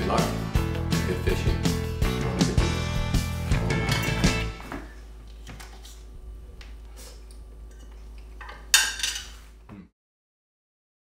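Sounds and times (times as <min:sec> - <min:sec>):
dishware clink: 0:07.7 - 0:09.4.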